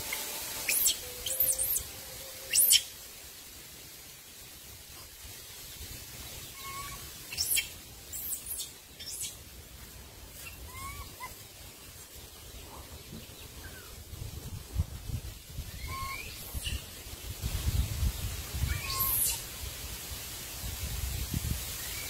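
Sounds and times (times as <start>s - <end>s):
shrill high bird calls: 0.0s - 3.0s, 6.4s - 9.4s, 10.4s - 11.4s, 15.7s - 16.9s, 18.6s - 19.4s
low wind rumble: 9.5s - 21.9s.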